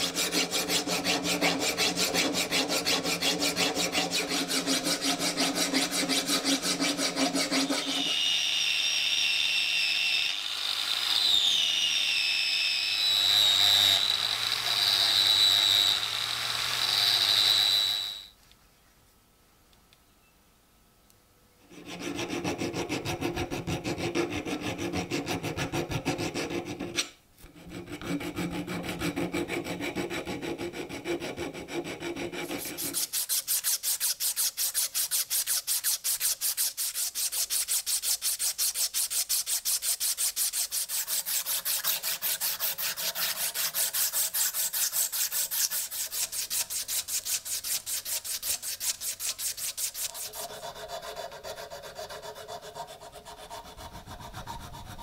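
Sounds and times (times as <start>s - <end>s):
abrasive strip rubbing steel: 31.8s - 54.9s.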